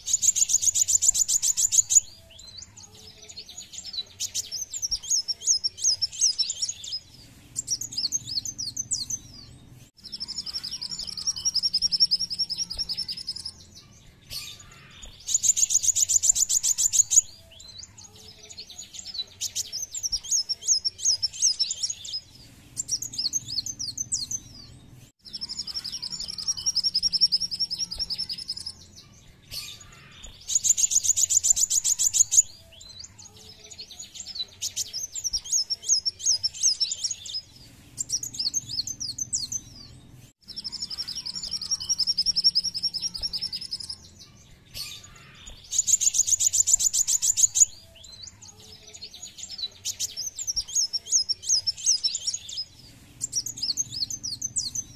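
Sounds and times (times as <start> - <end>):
sunbird twittering and trilling: 0.0 - 54.9.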